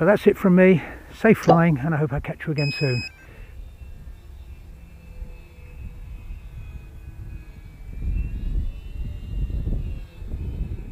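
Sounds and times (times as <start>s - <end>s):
model plane motors whining: 2.5s - 10.9s.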